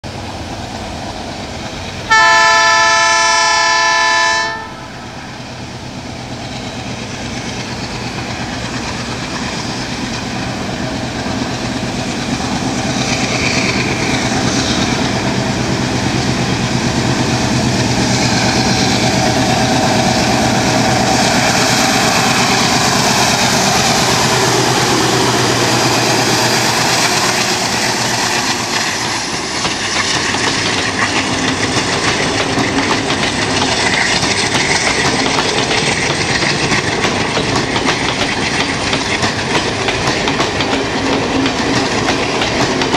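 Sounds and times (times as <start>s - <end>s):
diesel locomotive engine chugging: 0.0s - 42.9s
train wheels clickety-clack: 0.1s - 42.9s
locomotive horn: 2.1s - 5.2s.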